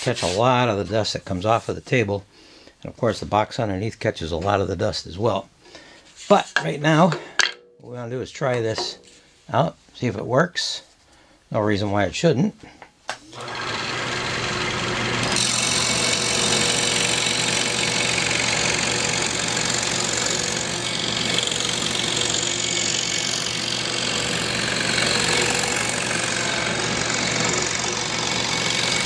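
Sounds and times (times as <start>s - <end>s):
scroll saw cutting wood: 0.0s - 0.4s, 13.2s - 29.0s.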